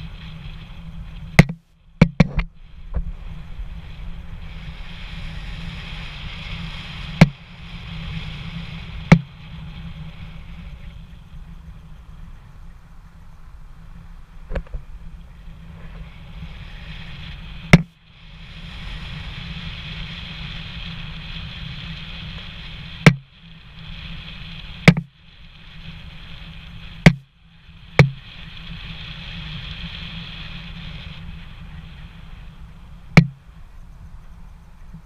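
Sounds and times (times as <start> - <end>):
car road and wind noise: 0.0 - 35.0
sharp loud knocks: 1.4 - 2.5, 9.1 - 9.3, 23.0 - 23.3, 24.9 - 25.1, 27.0 - 27.3, 28.0 - 28.2, 33.2 - 33.4.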